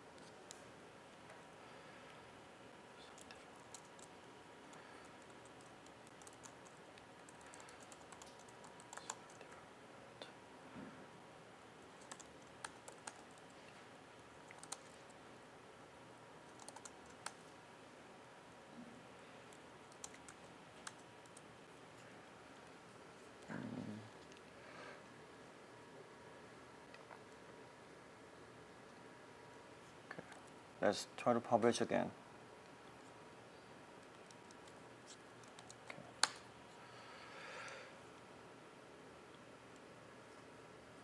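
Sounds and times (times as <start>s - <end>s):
typing on laptop keyboard: 3.1s - 4.1s, 4.7s - 9.5s, 11.9s - 13.5s, 14.5s - 15.0s, 16.5s - 17.4s, 19.5s - 21.4s, 35.4s - 36.4s.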